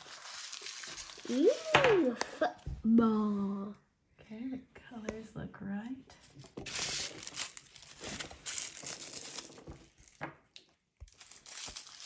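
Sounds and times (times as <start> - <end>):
plastic wrapping crinkling and tearing: 0.0 - 2.4, 6.4 - 12.0.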